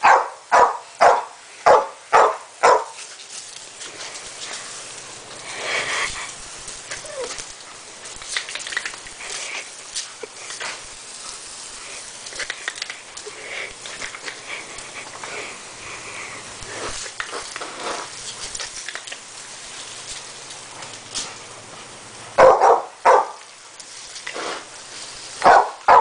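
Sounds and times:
dog barking excitedly: 0.0s - 3.0s, 22.3s - 23.4s, 25.4s - 26.0s
water spattering on concrete: 0.0s - 26.0s.

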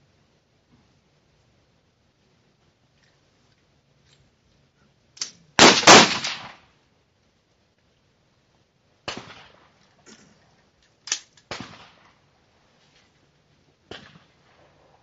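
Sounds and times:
rifle shots: 5.6s - 6.7s, 9.0s - 9.8s, 11.1s - 12.1s.

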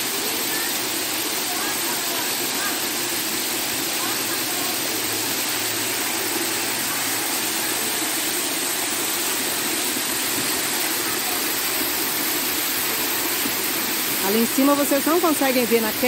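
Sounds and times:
waterfall pouring onto rocks: 0.0s - 16.0s.

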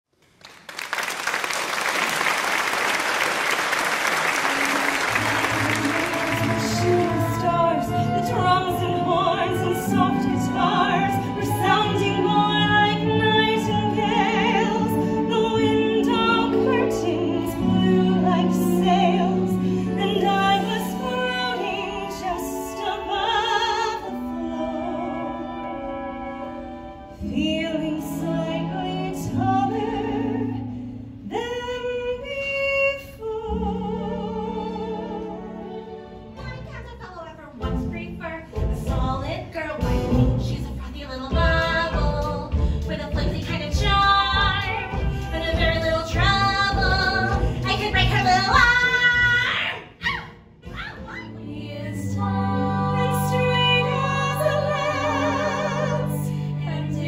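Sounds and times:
audience applauding: 0.2s - 7.4s
instrumental accompaniment: 4.2s - 31.3s, 33.5s - 49.4s
woman singing a show tune: 36.4s - 50.0s.

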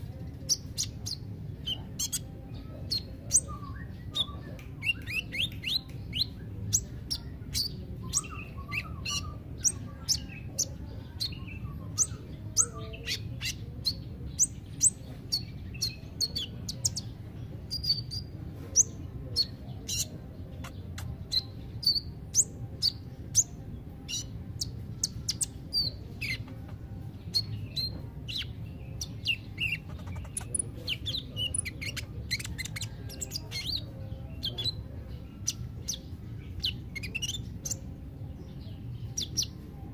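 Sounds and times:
bird chirping rapidly: 0.4s - 2.3s, 24.1s - 34.8s.

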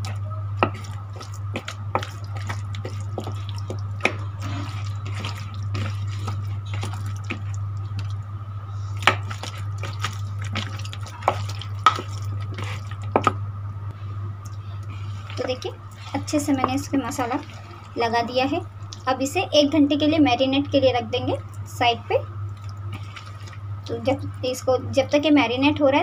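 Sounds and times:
hand squelching meat in marinade: 0.0s - 8.2s, 8.8s - 13.4s, 14.9s - 18.3s, 22.5s - 23.7s
steady low hum: 0.0s - 26.0s.

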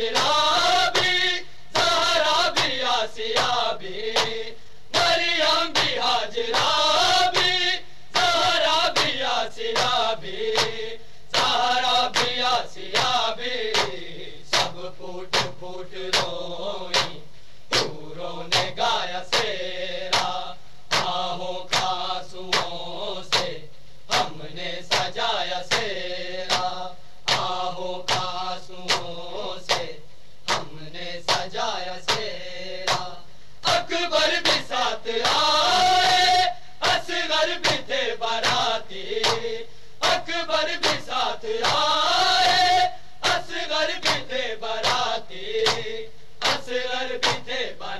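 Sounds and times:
men chanting a lament: 0.0s - 47.9s
hands slapping chests: 1.8s - 4.4s, 5.0s - 7.6s, 8.2s - 19.5s, 20.1s - 22.7s, 26.5s - 32.3s, 32.9s - 33.8s, 36.8s - 40.2s, 40.8s - 41.9s, 43.2s - 47.6s.

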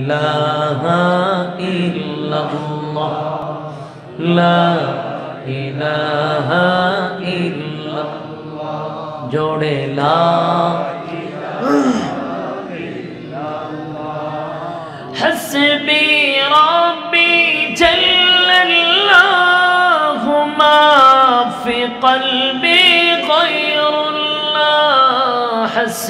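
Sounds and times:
man singing unaccompanied: 15.1s - 26.0s.

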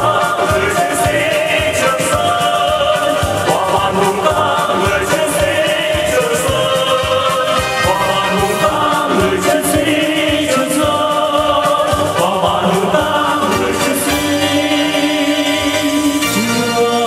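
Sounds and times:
instrumental accompaniment with beat: 0.0s - 17.0s
man and woman singing duet: 0.0s - 17.0s.

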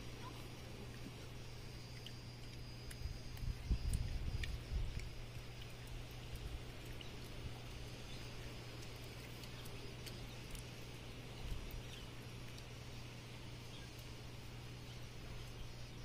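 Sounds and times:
steady low hum: 0.0s - 16.0s
faint ticks: 0.9s - 12.9s, 13.6s - 14.2s.

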